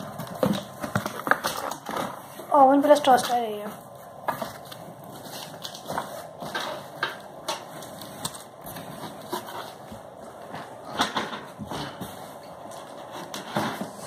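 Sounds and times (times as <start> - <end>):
plastic wrapping crinkling: 0.0 - 14.0
cardboard box rustling: 7.9 - 10.9.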